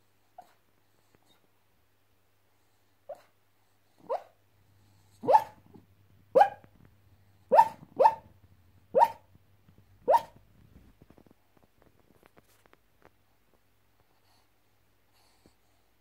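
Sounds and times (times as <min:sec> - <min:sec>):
small dog yipping: 0:04.0 - 0:04.3, 0:05.2 - 0:05.7, 0:06.3 - 0:06.7, 0:07.5 - 0:08.3, 0:09.0 - 0:09.3, 0:10.0 - 0:10.4.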